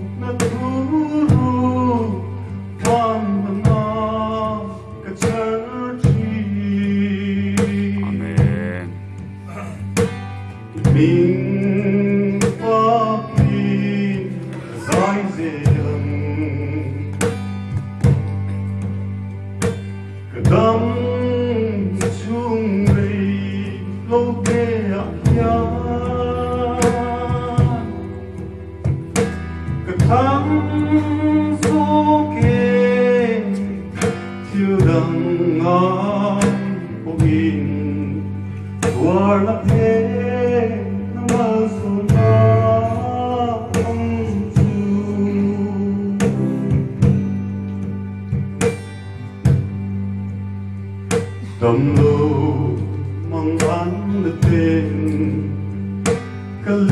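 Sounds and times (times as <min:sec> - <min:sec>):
man singing into a microphone: 0:00.0 - 0:10.0, 0:10.7 - 0:17.4, 0:20.3 - 0:28.3, 0:29.8 - 0:47.0, 0:51.5 - 0:55.8, 0:56.6 - 0:56.9
guitar: 0:00.0 - 0:56.9
sustained keyboard chords: 0:00.0 - 0:56.9
percussion strikes: 0:07.6 - 0:11.4, 0:17.2 - 0:20.7, 0:46.2 - 0:50.2.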